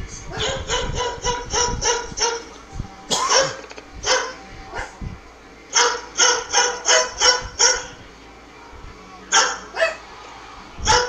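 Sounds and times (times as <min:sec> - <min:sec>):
dog barking: 0:00.3 - 0:02.5, 0:03.1 - 0:05.0, 0:05.7 - 0:08.0, 0:08.6 - 0:10.0.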